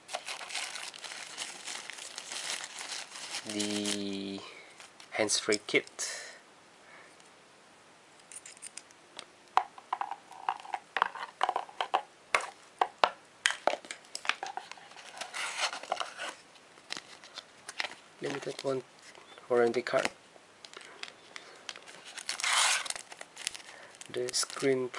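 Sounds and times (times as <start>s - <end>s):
plastic wrapping crinkling: 0.0s - 5.4s, 13.5s - 20.1s, 20.7s - 24.9s
rustling packaging: 0.0s - 5.8s, 13.5s - 24.9s
items clicking and tapping: 9.6s - 14.8s.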